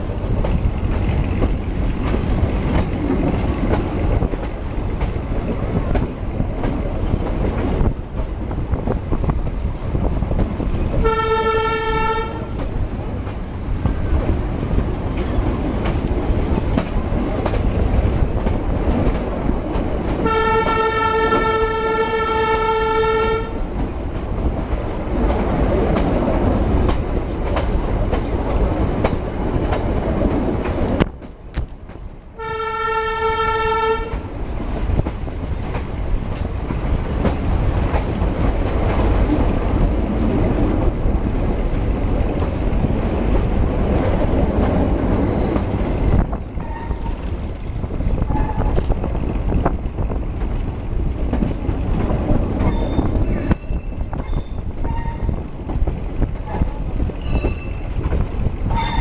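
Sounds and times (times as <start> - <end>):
train running rumble: 0.0 - 59.0
locomotive horn: 11.0 - 12.6, 20.2 - 23.6, 32.4 - 34.2.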